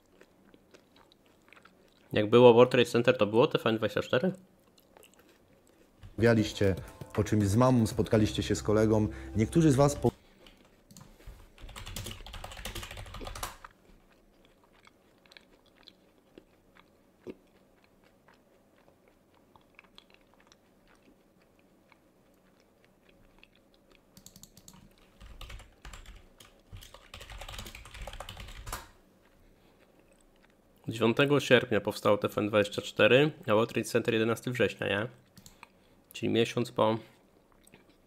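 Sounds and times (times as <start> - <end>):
typing on computer keyboard: 10.4 - 13.6, 24.2 - 28.9.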